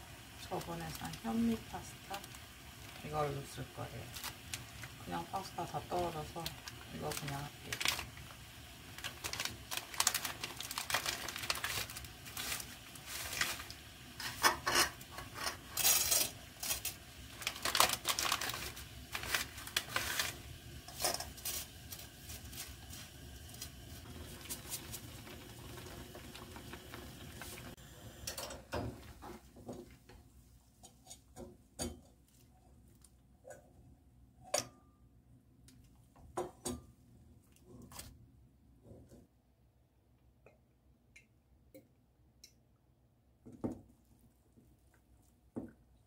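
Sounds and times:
boiling water hissing: 0.0s - 30.1s
pasta packet rustling: 4.0s - 5.0s, 6.3s - 14.6s, 15.6s - 27.7s.

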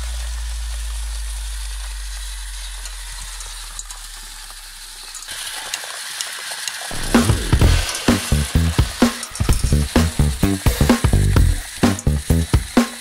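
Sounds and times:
steady hiss: 6.6s - 13.0s
deep low music tone: 7.0s - 12.5s.

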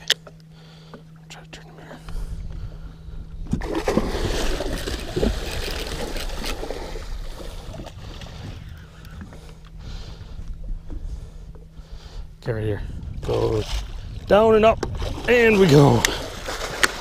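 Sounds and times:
fish thrashing and splashing: 3.6s - 8.5s.

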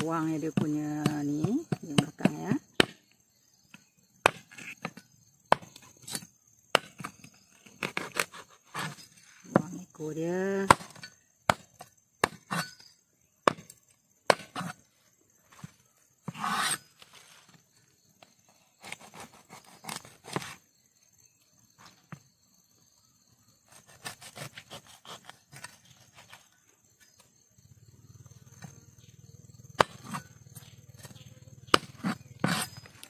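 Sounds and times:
short rasp: 16.3s - 16.9s.

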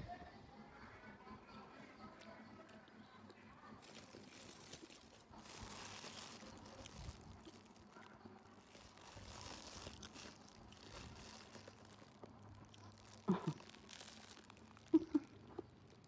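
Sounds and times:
plastic bag crinkling: 3.8s - 16.0s.

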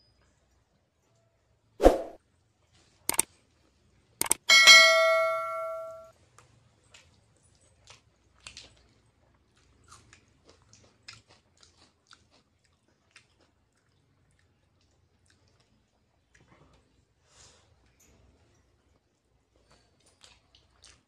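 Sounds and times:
bell-like chime: 4.5s - 6.1s
chewing noodles: 6.3s - 17.2s, 18.9s - 21.0s.

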